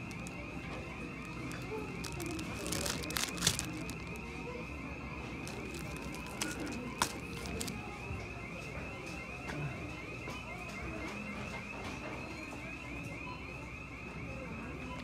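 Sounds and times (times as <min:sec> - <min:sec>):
plastic packaging crinkling: 0:00.0 - 0:00.4, 0:01.3 - 0:04.3, 0:05.4 - 0:07.8.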